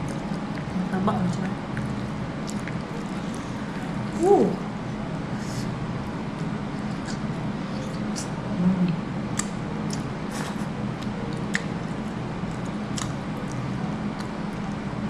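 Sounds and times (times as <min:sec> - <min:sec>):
wet chewing mouth sounds: 0:00.0 - 0:03.8, 0:09.3 - 0:14.8
steady low hum: 0:00.0 - 0:15.0.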